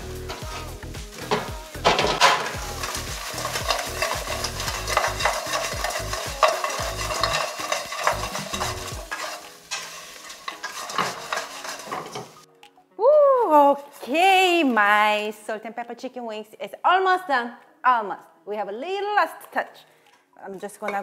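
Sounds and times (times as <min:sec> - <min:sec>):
food sizzling in a skillet: 0:00.0 - 0:12.5
spatula knocking and scraping pan: 0:00.3 - 0:12.5.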